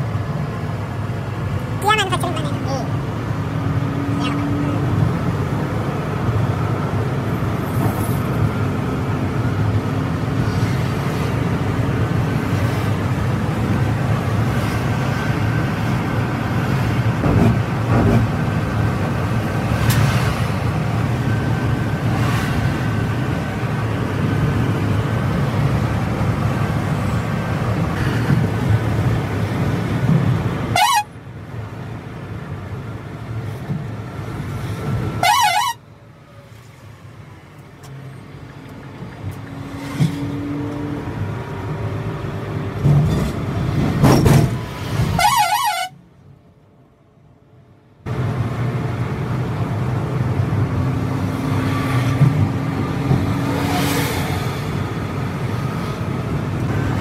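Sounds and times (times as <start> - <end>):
coach engine and tyres rumbling: 0.0 - 57.0
wavering horn toot: 30.7 - 31.1, 35.2 - 35.8, 45.1 - 46.0.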